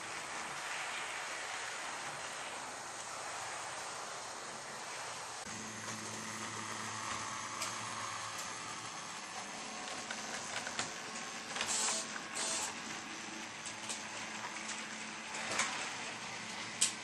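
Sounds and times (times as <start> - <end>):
model train motor hum: 0.0 - 17.0
wheels clicking over track: 5.4 - 17.0.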